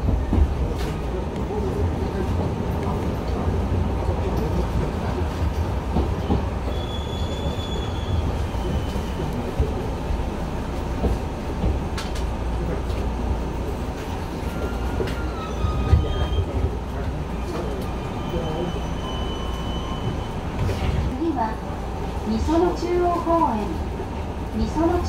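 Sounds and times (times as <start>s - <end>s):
train rumbling: 0.0s - 25.0s
train wheel squeals: 6.2s - 9.3s, 14.2s - 16.6s, 17.4s - 20.9s.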